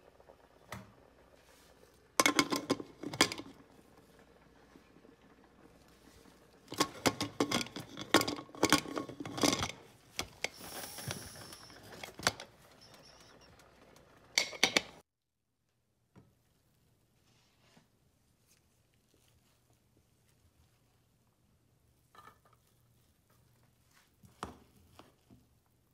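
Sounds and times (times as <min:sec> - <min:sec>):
brief hiss: 0:10.4 - 0:11.8.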